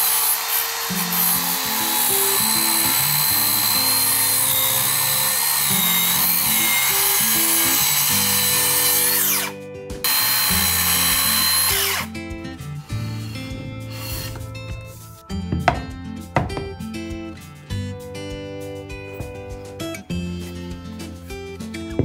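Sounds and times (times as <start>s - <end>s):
circular saw cutting wood: 0.0s - 14.5s.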